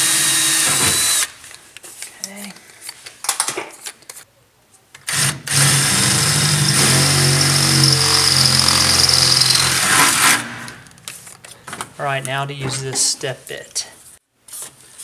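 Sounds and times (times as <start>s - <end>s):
power drill cutting sheet metal: 0.0s - 1.3s, 5.1s - 10.4s.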